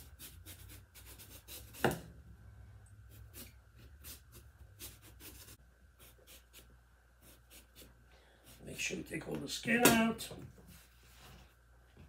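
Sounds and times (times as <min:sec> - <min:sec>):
knife scraping eggplant skin: 0:03.1 - 0:07.9.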